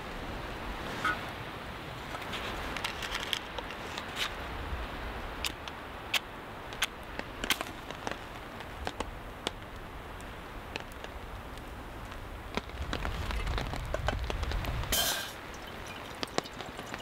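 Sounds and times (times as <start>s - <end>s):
steady rain hiss: 0.0s - 17.0s
drops tapping on a tarp: 6.8s - 9.7s, 16.1s - 17.0s.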